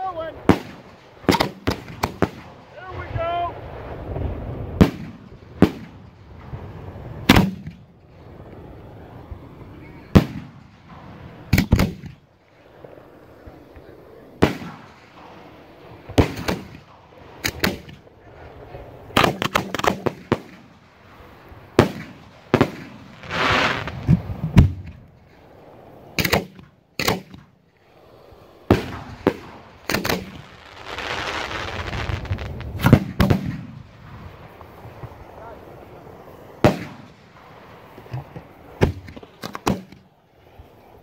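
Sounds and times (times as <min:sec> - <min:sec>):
firework bursts sharp bangs: 0:00.0 - 0:12.8, 0:14.4 - 0:40.7
hissing crackle: 0:00.0 - 0:41.0
firework shells launching: 0:00.4 - 0:03.0, 0:03.8 - 0:12.6, 0:14.4 - 0:28.0, 0:28.6 - 0:40.2.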